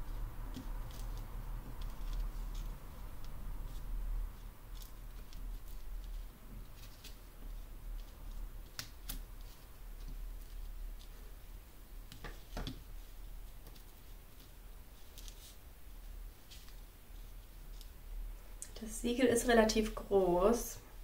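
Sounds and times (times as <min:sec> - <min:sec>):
paper rustling: 0:12.0 - 0:18.0.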